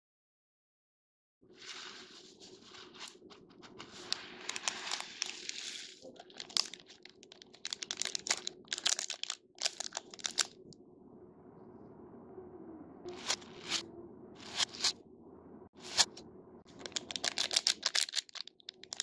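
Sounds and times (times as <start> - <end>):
hands rustling in foam beads: 1.6 - 10.5, 15.8 - 19.0
plastic wrappers crinkling: 3.7 - 10.7, 15.8 - 19.0.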